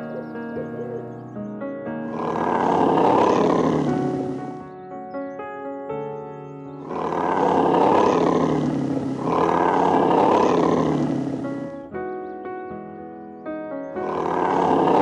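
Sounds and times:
animal roars: 0.0 - 1.1, 2.1 - 4.7, 6.8 - 11.9, 14.0 - 15.0
background music: 0.0 - 15.0.

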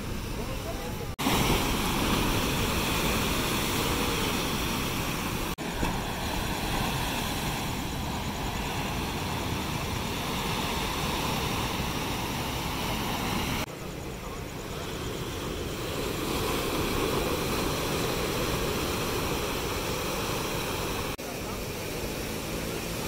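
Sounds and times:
waves breaking on rocky shore: 0.0 - 23.0.

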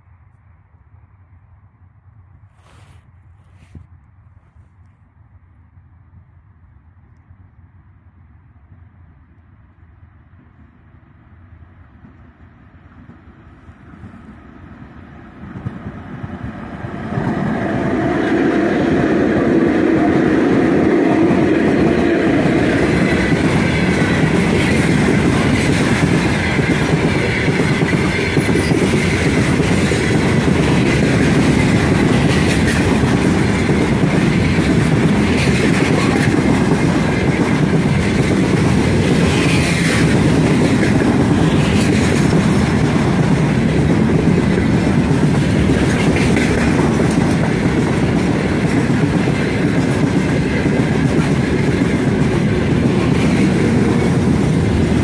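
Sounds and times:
freight train wheels rumbling: 8.4 - 55.0
clickety-clack over rail joints: 11.8 - 55.0.

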